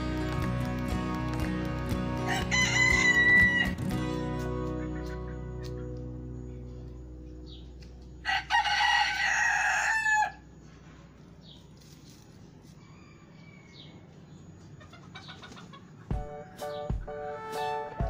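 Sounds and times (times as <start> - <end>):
rooster crowing: 2.2 - 3.9, 8.2 - 10.5, 12.8 - 14.2.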